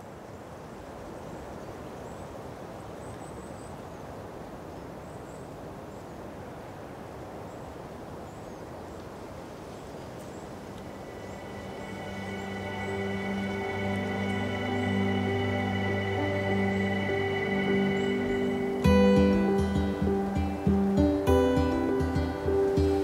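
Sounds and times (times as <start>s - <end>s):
steady rushing noise: 10.3s - 23.0s
sustained music notes: 10.6s - 23.0s.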